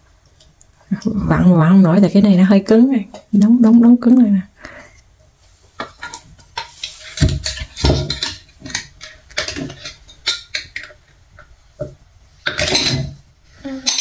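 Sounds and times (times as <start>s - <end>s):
glass jars and metal lids clinking: 5.9s - 11.0s, 12.4s - 13.2s, 13.8s - 14.0s.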